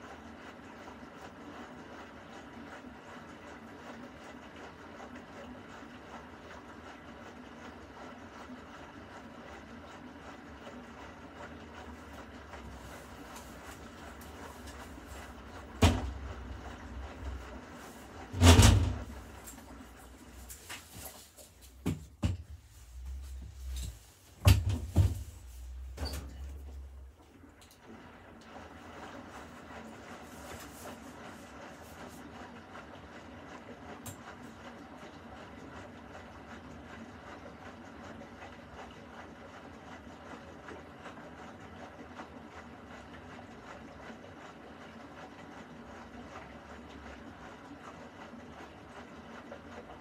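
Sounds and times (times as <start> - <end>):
washing machine churning laundry: 0.0 - 50.0
wet laundry thudding: 12.6 - 26.9.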